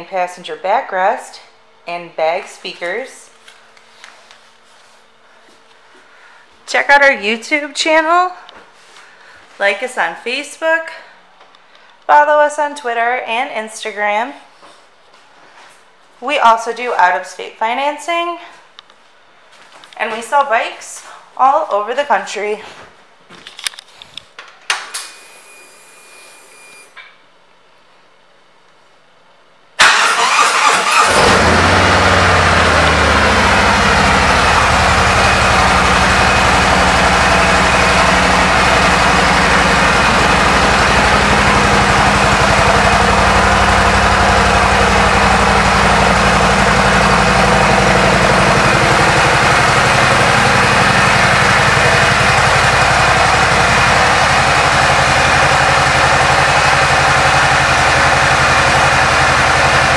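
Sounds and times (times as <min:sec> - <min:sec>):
motorcycle engine cranking: 0:29.8 - 0:35.7
motorcycle engine idling: 0:30.3 - 0:59.9.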